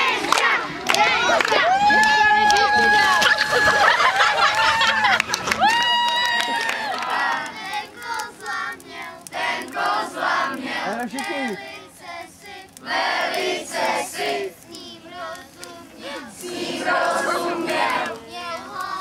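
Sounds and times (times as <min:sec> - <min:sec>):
children singing together: 0:00.0 - 0:01.7, 0:07.0 - 0:19.0.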